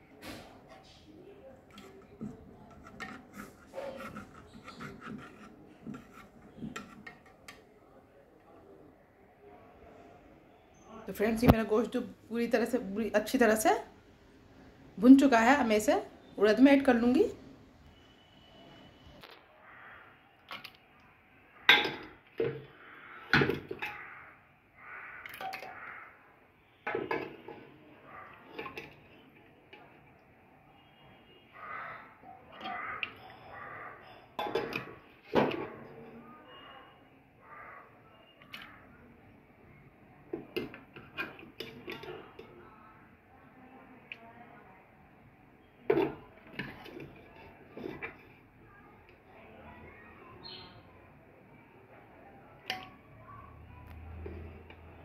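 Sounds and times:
ladle scraping metal pressure cooker: 1.7 - 7.2
metal ladle knocking on pots: 21.7 - 22.6.

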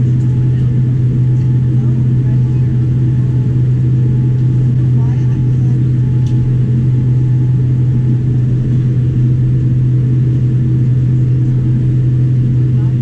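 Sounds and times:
aircraft cabin drone: 0.0 - 13.0.

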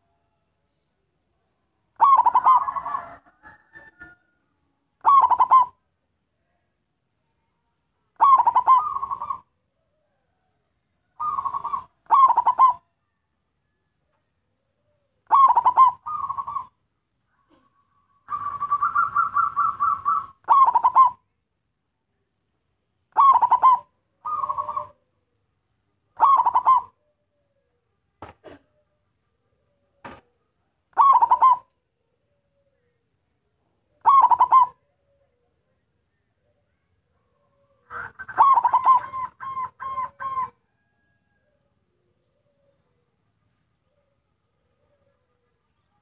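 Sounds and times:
dove cooing: 2.0 - 4.3, 5.0 - 5.9, 8.2 - 13.0, 14.8 - 16.8, 17.4 - 21.3, 23.1 - 25.4, 26.2 - 33.0, 33.8 - 35.8, 36.4 - 43.2.

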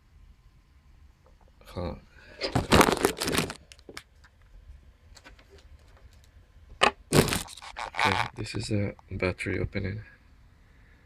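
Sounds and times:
microphone handling rubbing: 7.1 - 8.7.

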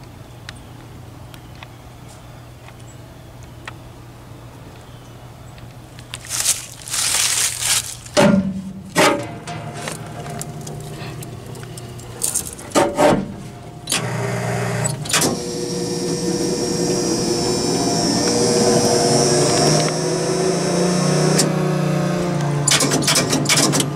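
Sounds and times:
siren motor humming: 13.8 - 22.7.

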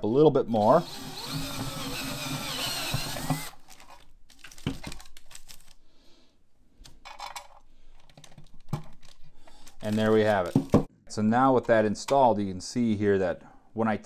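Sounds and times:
cordless drill cutting steel: 0.6 - 3.6.

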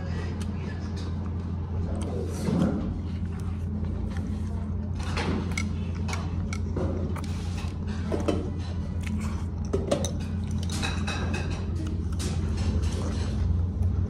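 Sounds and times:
steady low hum: 0.0 - 14.0
chopsticks and tableware clinking: 5.0 - 13.5.

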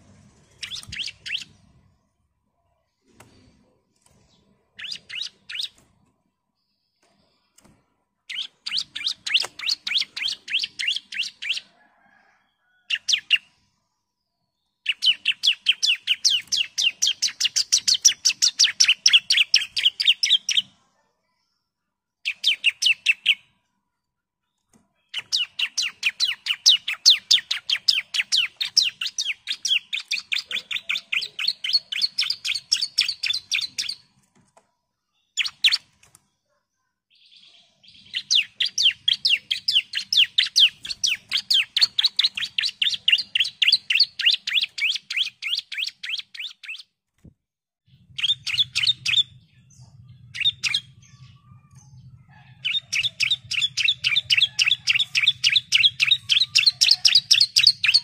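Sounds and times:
bird rapid sharp chirping: 0.1 - 1.8, 4.3 - 5.8, 8.3 - 11.7, 14.9 - 20.7, 25.1 - 34.1, 37.8 - 46.9, 48.1 - 49.5, 52.6 - 58.0.

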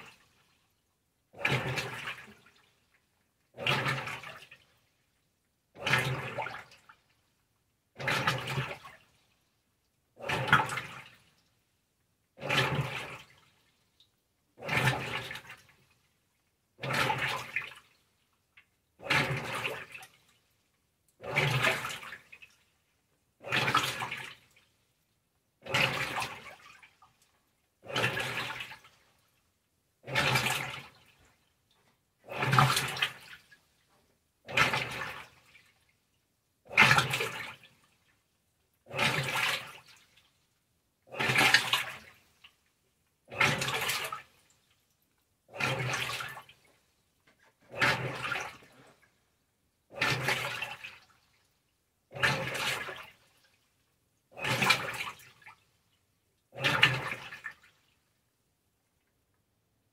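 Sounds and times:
washing machine agitating: 1.3 - 2.6, 3.5 - 4.6, 5.7 - 6.9, 7.9 - 9.0, 10.2 - 11.3, 12.4 - 13.5, 14.6 - 15.9, 16.8 - 17.9, 19.0 - 20.2, 21.2 - 22.6, 23.4 - 24.6, 25.6 - 27.1, 27.8 - 29.0, 30.0 - 31.2, 32.2 - 33.6, 34.4 - 35.7, 36.6 - 37.7, 38.8 - 40.2, 41.0 - 42.2, 43.2 - 44.4, 45.5 - 46.7, 47.5 - 49.2, 49.9 - 51.2, 52.1 - 53.4, 54.3 - 55.6, 56.5 - 57.8.

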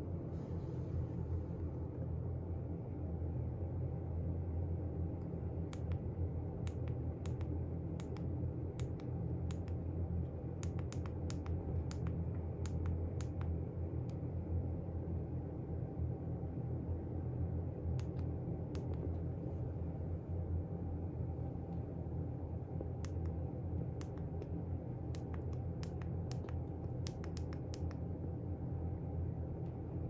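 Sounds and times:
steady low hum: 0.0 - 30.0
small sharp clicks: 5.7 - 9.8, 10.6 - 14.2, 24.0 - 28.0.

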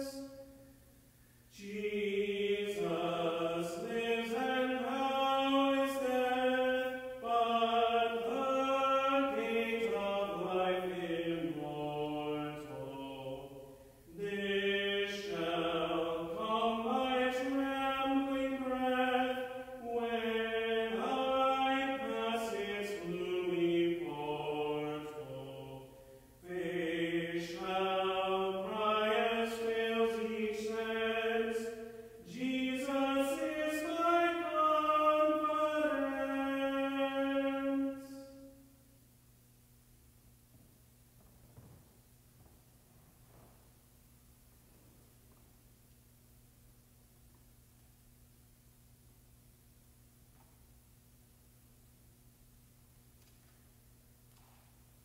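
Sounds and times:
man singing unaccompanied: 1.5 - 38.4.

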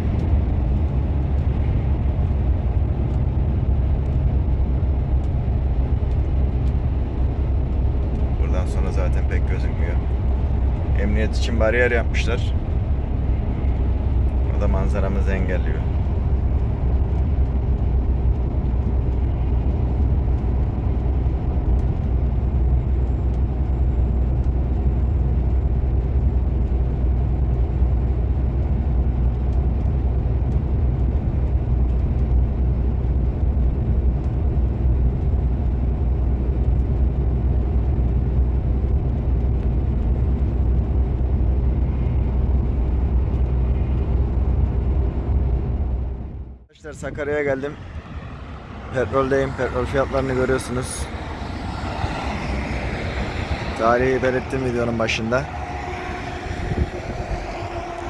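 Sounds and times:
truck engine and tyres droning: 0.0 - 58.0.

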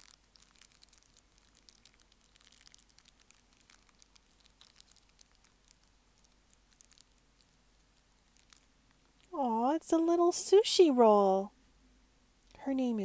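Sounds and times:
wrapper crinkling: 0.0 - 9.4.

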